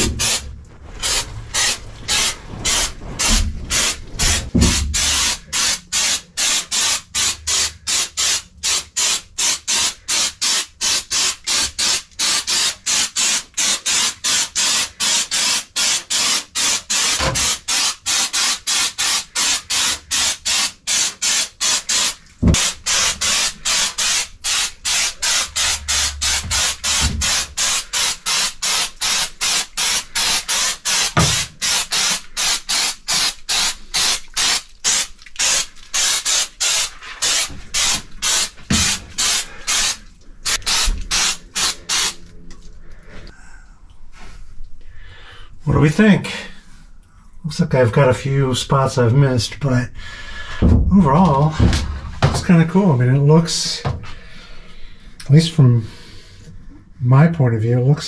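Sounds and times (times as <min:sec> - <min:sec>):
aerosol can spraying in bursts: 0:00.0 - 0:42.2.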